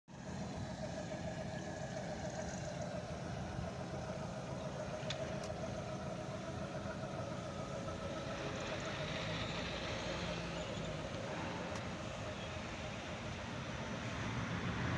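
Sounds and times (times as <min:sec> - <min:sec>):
engine idling: 0:00.1 - 0:14.9.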